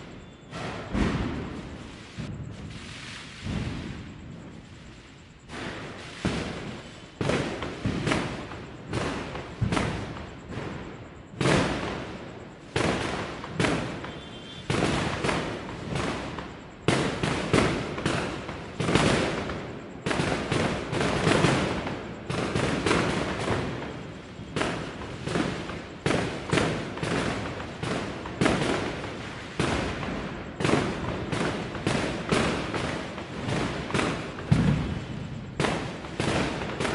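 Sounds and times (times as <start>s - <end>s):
aerial fireworks bursting: 0.0s - 36.9s.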